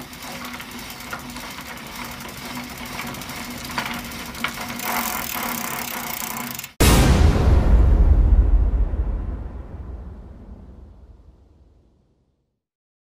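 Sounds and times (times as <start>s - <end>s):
film projector clatter: 0.0s - 6.8s.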